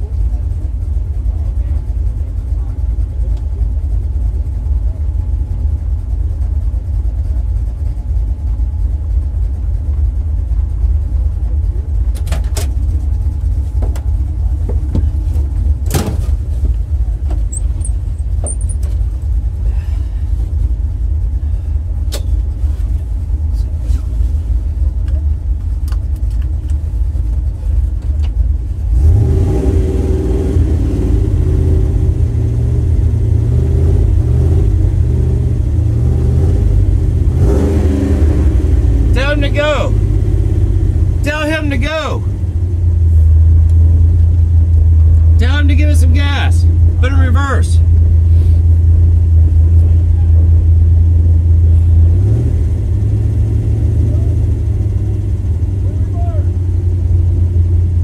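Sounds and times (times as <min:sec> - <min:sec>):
engine idling: 0:00.0 - 0:58.0
engine revving: 0:28.8 - 0:42.7, 0:49.5 - 0:58.0.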